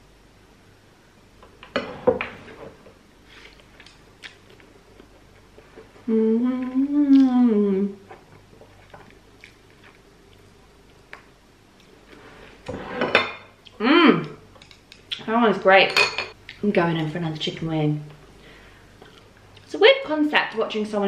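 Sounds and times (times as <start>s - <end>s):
woman humming mmm: 6.0s - 8.1s, 13.8s - 14.4s.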